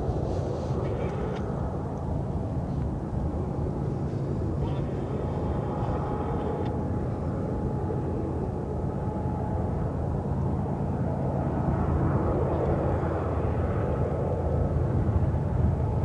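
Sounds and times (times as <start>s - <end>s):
locomotive engine rumble: 0.0s - 10.8s
faint hum: 0.0s - 16.0s.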